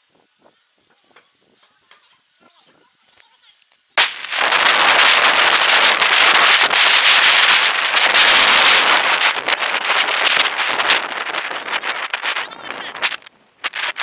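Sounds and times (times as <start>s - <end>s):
constant crackling: 0.1s - 14.0s
wind buffeting on microphone: 4.2s - 14.0s.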